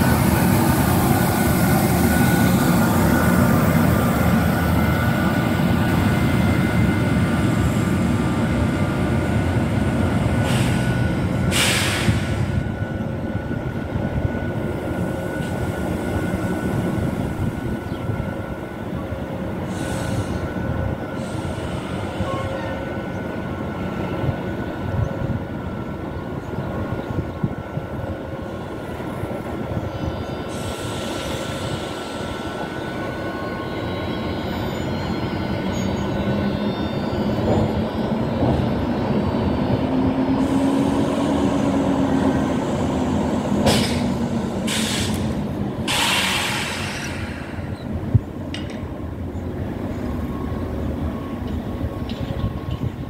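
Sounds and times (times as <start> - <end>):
locomotive wheels and motors rumbling: 34.7 - 53.0
brief hisses: 44.7 - 45.3, 45.9 - 47.7.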